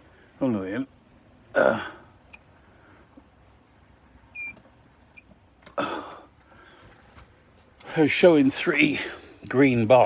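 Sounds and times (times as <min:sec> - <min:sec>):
man breathing: 0:01.6 - 0:03.3, 0:05.7 - 0:07.2, 0:08.9 - 0:09.5.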